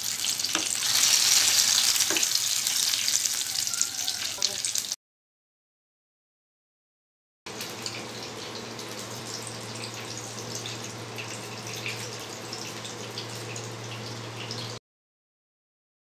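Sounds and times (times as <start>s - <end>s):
hot oil sizzling and crackling: 0.0s - 5.0s, 7.5s - 14.8s.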